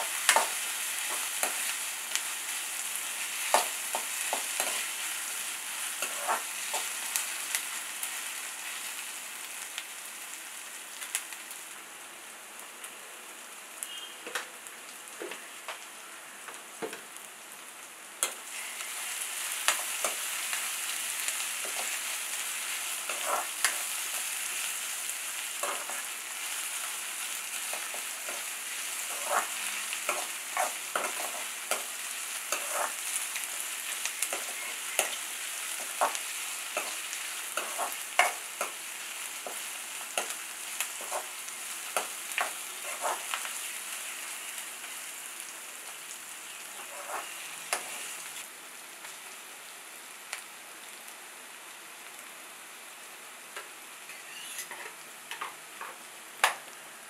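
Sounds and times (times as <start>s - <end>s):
vegetables sizzling in hot oil: 0.0s - 57.0s
metal spatula scraping pan: 23.0s - 23.9s, 29.0s - 31.9s, 32.5s - 33.0s, 42.4s - 43.3s, 46.8s - 48.0s, 54.1s - 55.0s.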